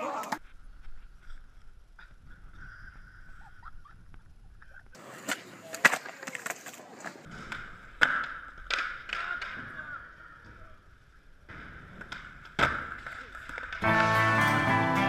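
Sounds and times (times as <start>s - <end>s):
skateboard wheels rolling: 5.0s - 14.4s
skateboard clacks and landings: 5.1s - 10.0s, 11.5s - 13.8s.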